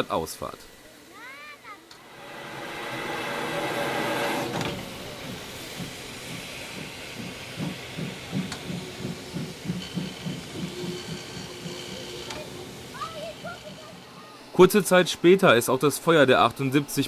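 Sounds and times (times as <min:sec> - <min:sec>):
steam hissing: 0:00.0 - 0:16.2
steam locomotive exhaust chuffs: 0:01.9 - 0:14.7.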